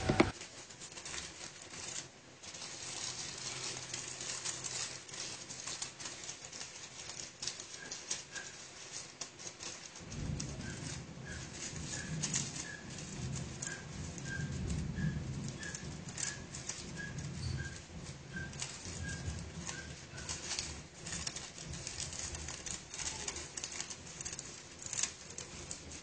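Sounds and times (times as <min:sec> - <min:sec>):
aluminium foil crinkling: 0:00.0 - 0:26.0.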